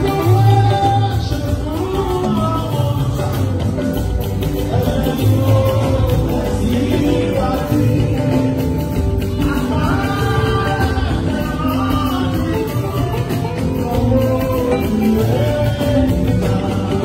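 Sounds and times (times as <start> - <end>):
instrumental backing with bass line: 0.0 - 17.0
choir singing a hymn: 5.0 - 8.8.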